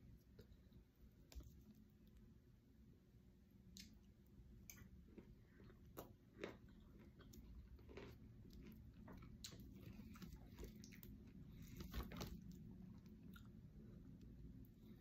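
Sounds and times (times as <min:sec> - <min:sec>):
person chewing: 0:03.7 - 0:15.0.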